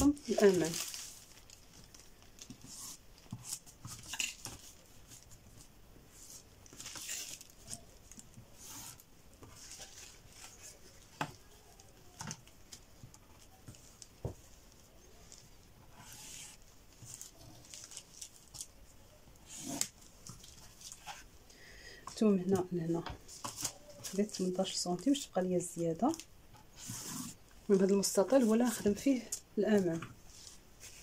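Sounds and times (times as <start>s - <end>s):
rulers rustling and tapping on paper: 1.8s - 18.7s.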